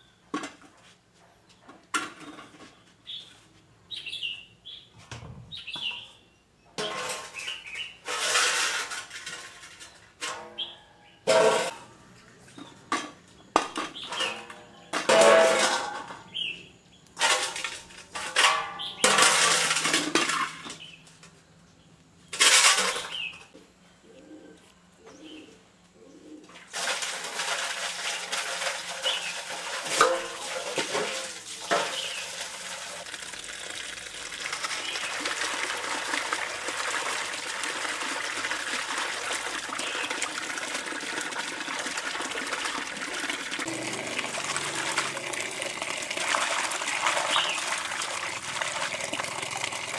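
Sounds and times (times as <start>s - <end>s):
loud knocks and scrapes: 6.8s - 10.6s, 11.3s - 11.8s
running water rushing: 31.1s - 49.9s.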